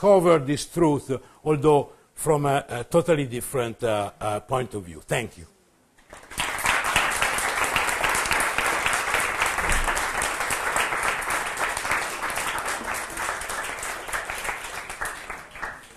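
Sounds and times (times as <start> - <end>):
audience applauding: 6.0 - 15.9.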